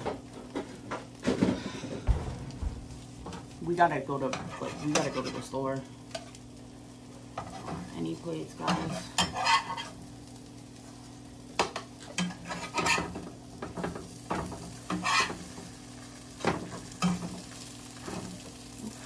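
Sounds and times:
bread sizzling in a pan: 0.0s - 19.0s
low hum: 1.8s - 4.2s
metal spatula scraping a pan: 4.2s - 6.4s, 8.6s - 10.0s, 12.1s - 13.2s, 14.6s - 15.6s.

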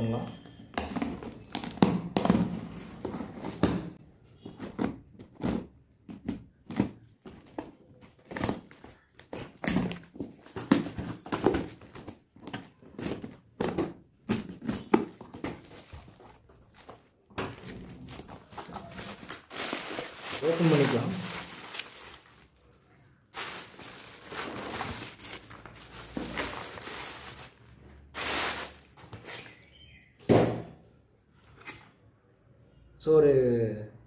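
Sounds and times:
tape ripping: 23.4s - 29.6s.

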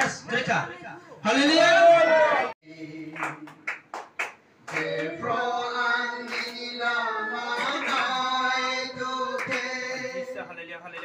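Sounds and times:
hand claps: 3.1s - 5.2s, 6.2s - 6.6s, 7.5s - 8.3s, 9.3s - 10.2s
group of voices singing: 4.7s - 10.4s.

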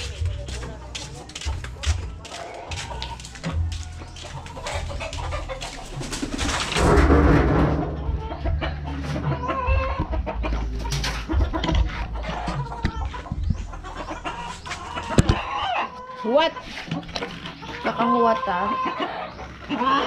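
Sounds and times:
chickens clucking: 0.0s - 20.0s
low rumble: 5.9s - 15.2s.

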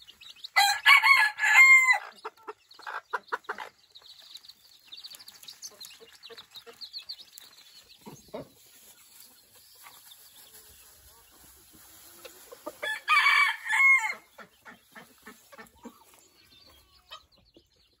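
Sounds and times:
chicken clucks: 0.0s - 18.0s
rooster crowing: 0.6s - 2.0s, 12.8s - 14.3s.

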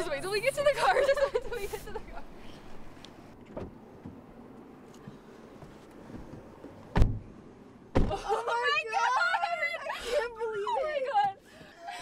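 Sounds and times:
car door shutting: 3.4s - 4.3s, 6.1s - 7.3s, 7.9s - 8.2s.

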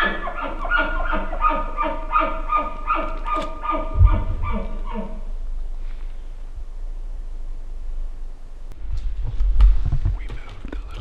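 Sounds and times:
low thump: 3.9s - 4.7s.

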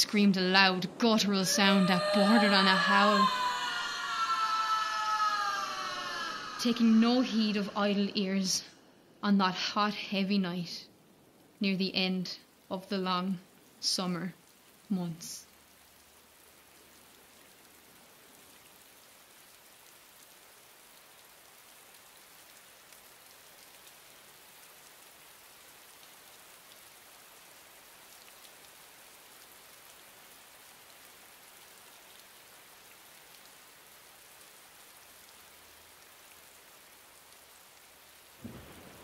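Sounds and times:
light rain: 0.0s - 39.0s.

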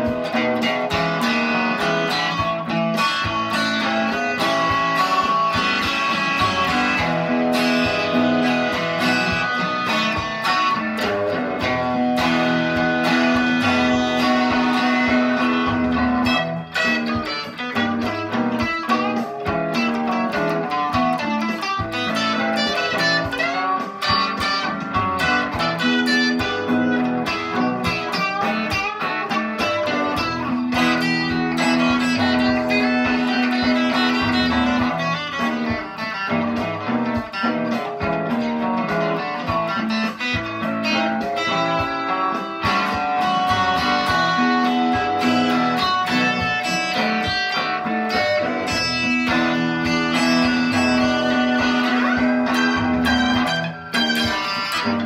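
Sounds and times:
electric guitar blues lick: 0.0s - 55.0s.

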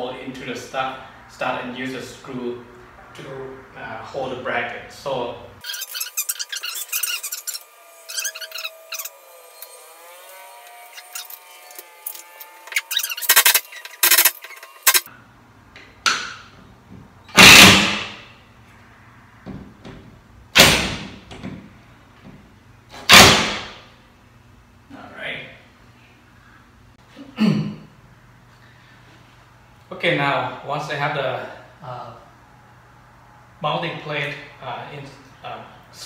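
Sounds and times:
cordless drill drilling wood: 6.2s - 15.0s.

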